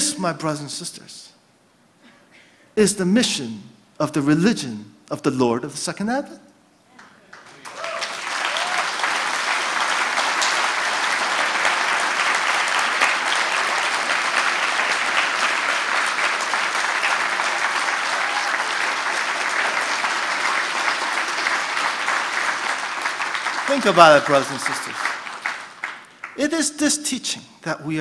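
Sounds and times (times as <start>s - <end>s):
audience applause: 7.0s - 26.4s.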